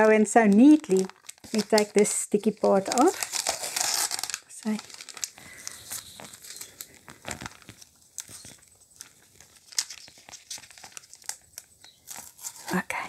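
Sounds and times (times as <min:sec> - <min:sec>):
plastic film crinkling: 0:00.0 - 0:13.0
tape peeling off plastic: 0:02.7 - 0:12.8.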